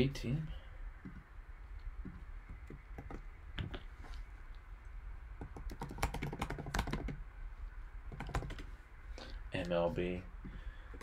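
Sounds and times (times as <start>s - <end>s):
computer keyboard typing: 2.0s - 3.7s, 5.4s - 7.2s, 8.1s - 8.7s.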